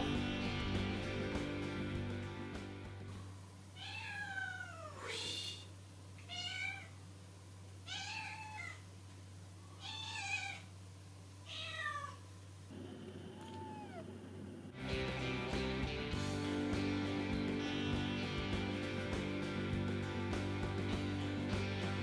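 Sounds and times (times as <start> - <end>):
cat meowing: 3.8 - 5.2, 6.3 - 6.9, 7.9 - 8.8, 9.8 - 10.7, 11.5 - 12.2, 13.3 - 14.2.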